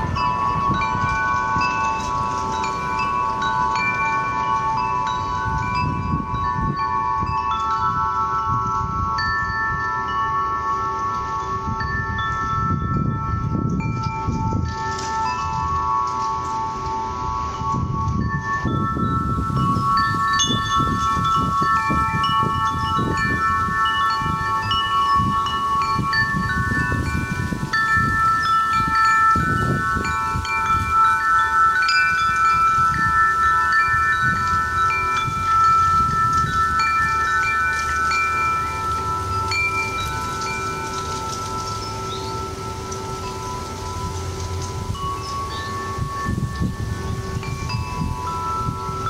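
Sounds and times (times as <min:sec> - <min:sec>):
metal wind chimes ringing: 0:00.0 - 0:49.0
wind gusts: 0:00.0 - 0:49.0.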